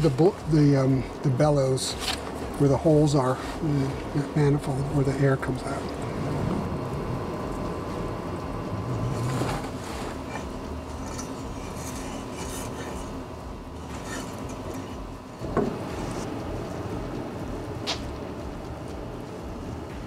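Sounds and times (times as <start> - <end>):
blower humming: 0.0 - 20.0
metal knocking and scraping: 9.1 - 13.1, 13.8 - 16.3.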